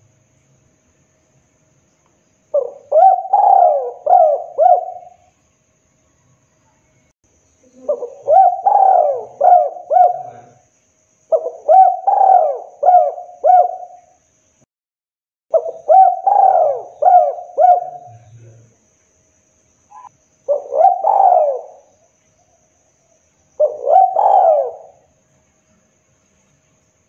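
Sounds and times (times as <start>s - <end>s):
dove cooing: 2.5s - 5.3s, 7.6s - 10.6s, 11.3s - 14.1s, 15.5s - 18.6s, 19.9s - 22.0s, 23.6s - 25.1s.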